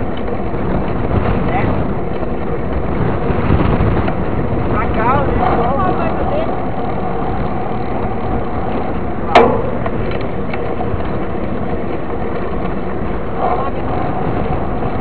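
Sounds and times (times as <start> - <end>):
bike road rumble: 0.0 - 15.0
wind on camera: 0.0 - 15.0
sharp clack: 9.2 - 11.3.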